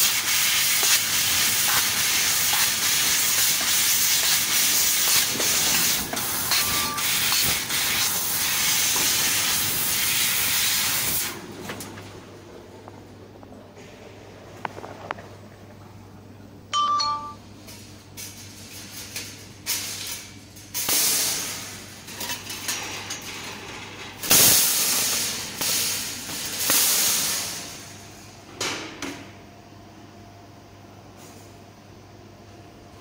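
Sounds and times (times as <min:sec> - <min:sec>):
low machine hum: 0:11.1 - 0:20.8
metal clink ringing: 0:16.8 - 0:17.4.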